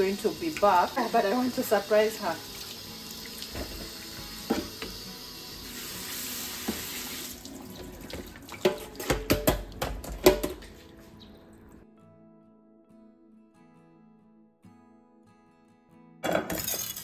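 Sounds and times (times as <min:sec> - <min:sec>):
tap running into a sink: 0:02.5 - 0:05.0, 0:06.1 - 0:10.6
kitchenware clinking and knocking: 0:03.5 - 0:03.9, 0:04.5 - 0:04.9, 0:08.1 - 0:10.7, 0:16.2 - 0:17.0.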